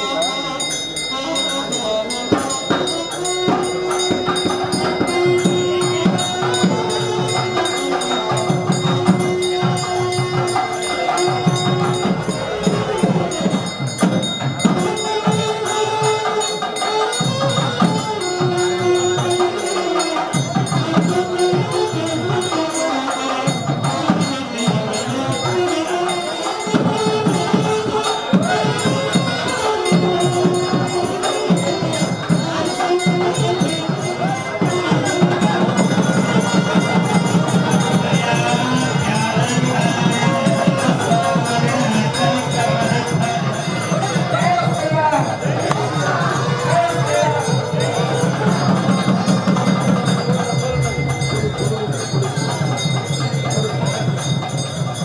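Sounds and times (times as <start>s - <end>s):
music with percussion: 0.0s - 55.0s
steady jingling rhythm: 0.0s - 55.0s.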